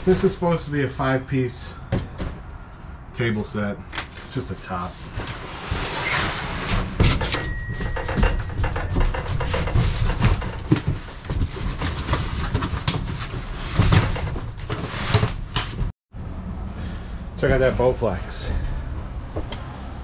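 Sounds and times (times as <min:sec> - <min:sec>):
cardboard boxes knocking and thumping: 0:07.0 - 0:15.9
cardboard scraping: 0:09.2 - 0:15.9.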